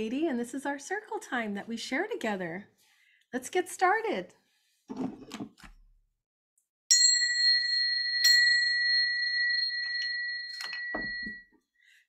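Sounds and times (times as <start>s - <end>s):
brass hand bell ringing: 6.9s - 11.4s.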